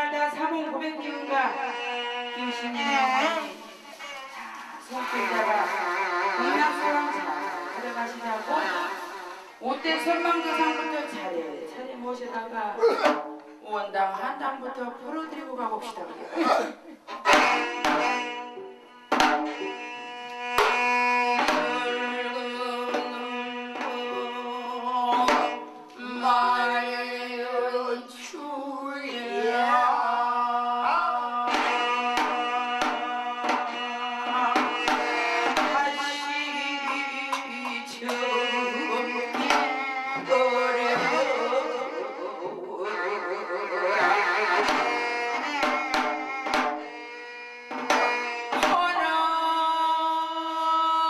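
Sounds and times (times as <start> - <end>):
drum strokes: 4.8 - 11.3, 12.8 - 13.6, 17.1 - 26.3, 30.8 - 42.0, 44.5 - 49.2.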